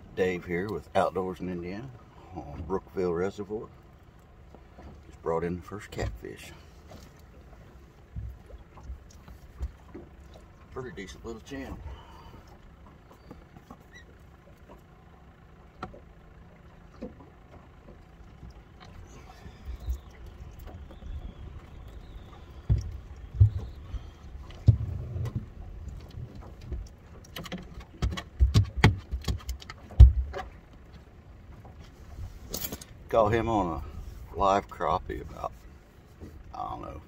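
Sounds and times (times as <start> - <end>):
wind buffeting microphone: 19.6 - 26.9
low thumps: 19.7 - 26.9
sharp knocks and clatter: 22.6 - 23.8, 24.4 - 31.7.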